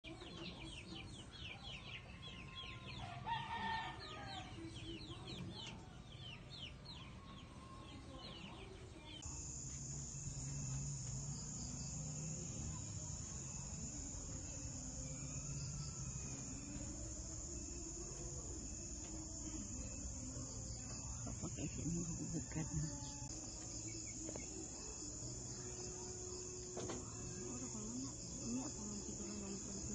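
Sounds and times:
chorus of night crickets: 0:09.0 - 0:29.9
birds chirping: 0:10.1 - 0:29.9.

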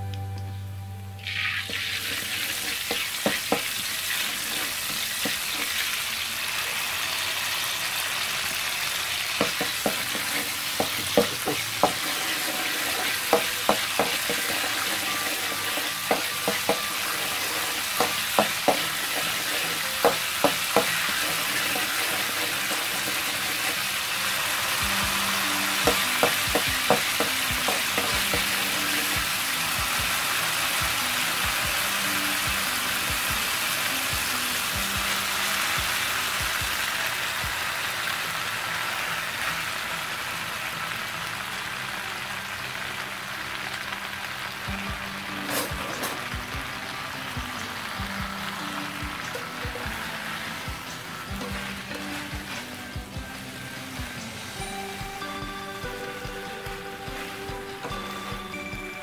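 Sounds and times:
food sizzling in oil in a wok: 0:01.2 - 0:59.0
metal spatula scraping a pan: 0:01.6 - 0:05.9, 0:09.5 - 0:23.9, 0:51.4 - 0:52.9.

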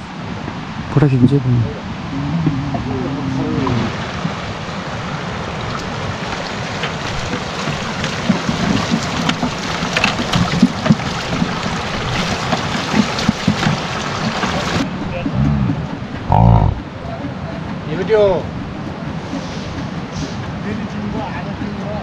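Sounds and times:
rushing mountain stream: 0:00.0 - 0:17.1
splashes and knocks in water: 0:05.6 - 0:14.8.

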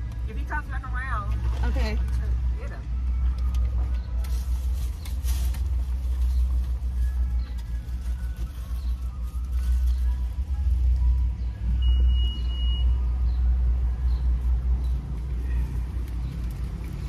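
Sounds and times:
high beep: 0:11.8 - 0:13.0.

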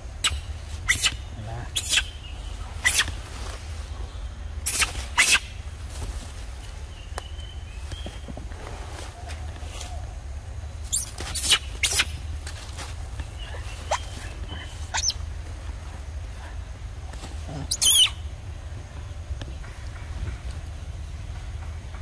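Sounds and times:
monkeys squealing: 0:00.2 - 0:03.2, 0:04.7 - 0:05.6, 0:10.9 - 0:12.2, 0:13.4 - 0:15.3, 0:17.4 - 0:18.3.

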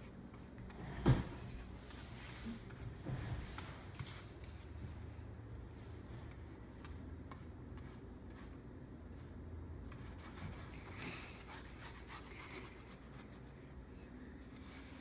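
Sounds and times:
paintbrush brushing on canvas: 0:00.0 - 0:04.7.

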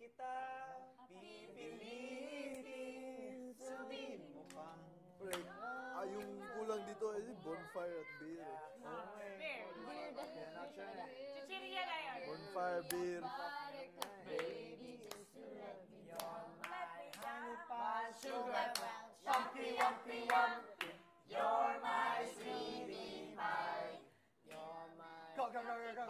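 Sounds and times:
voices singing together: 0:00.0 - 0:26.0
hand claps: 0:05.3 - 0:05.6, 0:16.1 - 0:17.4, 0:18.2 - 0:21.0.

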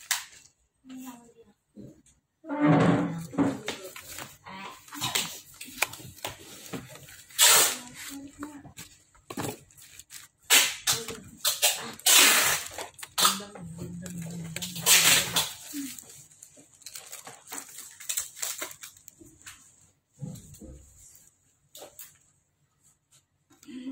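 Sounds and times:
bubble wrap and plastic crinkling: 0:03.3 - 0:20.4.

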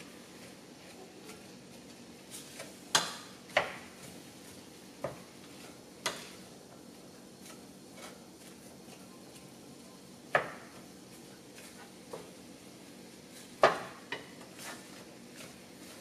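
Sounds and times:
meat sizzling: 0:10.2 - 0:16.0.

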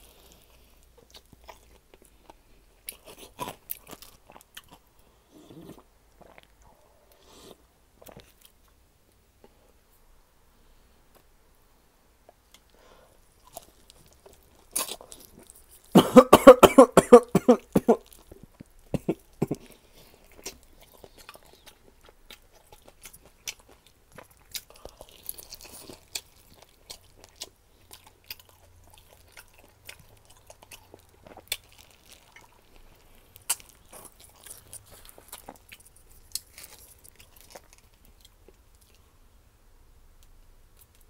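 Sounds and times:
chewing and crunching fried chicken: 0:00.0 - 0:06.8, 0:12.3 - 0:16.0, 0:17.6 - 0:39.2, 0:40.2 - 0:41.0
person coughing: 0:16.0 - 0:18.1, 0:19.0 - 0:19.7.

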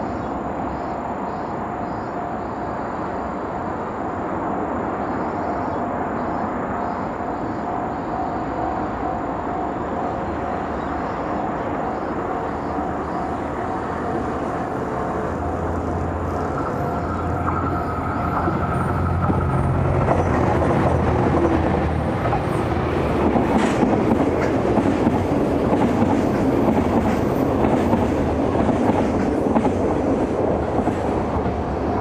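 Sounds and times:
diesel locomotive engine drone: 0:00.0 - 0:32.0
traffic noise: 0:00.0 - 0:32.0
steady whine: 0:07.3 - 0:23.3.

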